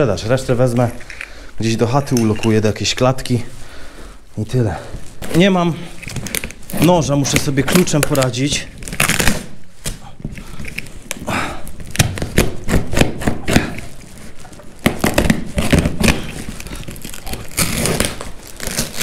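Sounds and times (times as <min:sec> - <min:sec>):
cardboard and tape ripping: 0:05.1 - 0:19.0.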